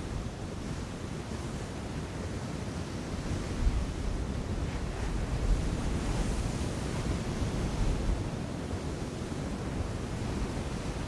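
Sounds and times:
wind buffeting microphone: 0:03.2 - 0:08.5.

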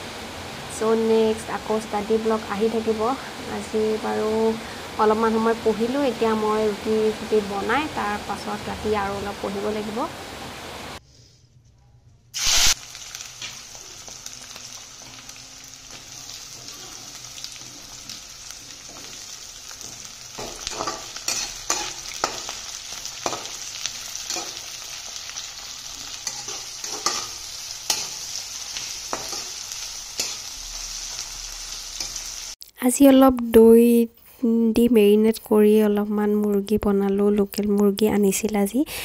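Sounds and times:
onions sizzling in hot oil: 0:00.0 - 0:11.0, 0:12.4 - 0:32.6
metal spatula scraping pan: 0:26.1 - 0:28.3.

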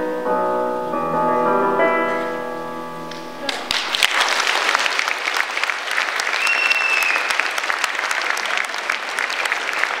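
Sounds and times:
audience applauding: 0:03.4 - 0:10.0
high whistle: 0:06.3 - 0:07.5.

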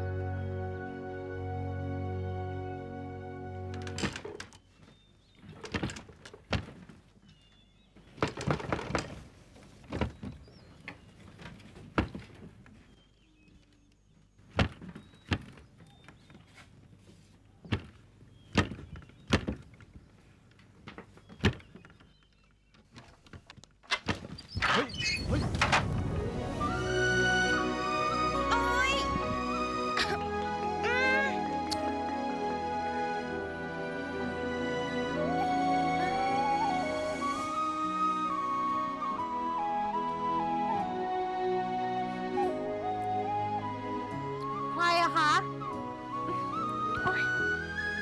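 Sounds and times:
music: 0:00.0 - 0:04.3, 0:25.4 - 0:48.0
scattered knocks and thuds: 0:05.5 - 0:07.0, 0:08.1 - 0:09.2.

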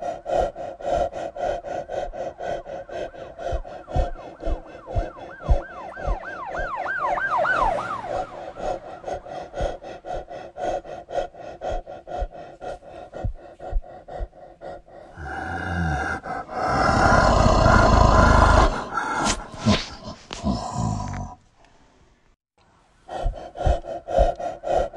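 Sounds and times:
regular ticking pulse: 0:00.0 - 0:18.7, 0:23.1 - 0:24.9
siren-like warbling tone: 0:04.7 - 0:09.0.

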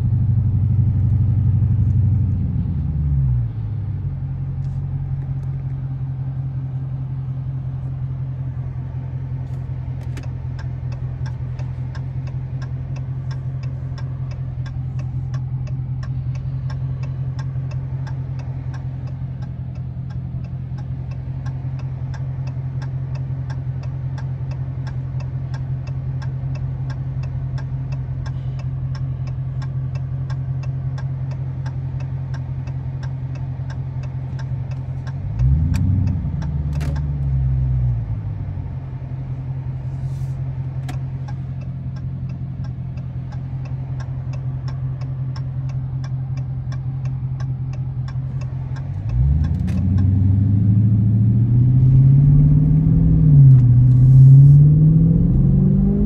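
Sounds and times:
car engine revving and accelerating: 0:00.0 - 0:56.0
turn signal ticking: 0:00.0 - 0:56.0.

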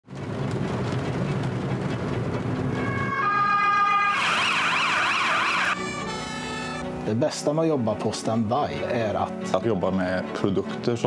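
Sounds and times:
low rumble: 0:00.5 - 0:04.8
electronic siren yelp: 0:02.7 - 0:06.9.

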